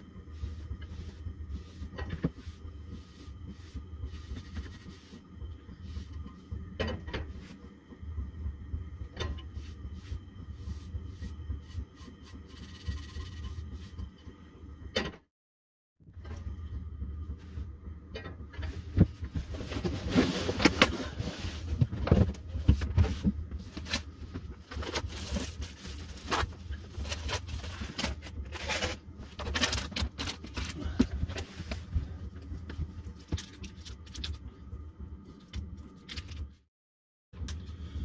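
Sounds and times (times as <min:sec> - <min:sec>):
rustling and scraping of objects: 0:00.0 - 0:07.7, 0:17.4 - 0:34.5
steady low hum: 0:00.0 - 0:15.2, 0:16.0 - 0:36.7, 0:37.4 - 0:38.0.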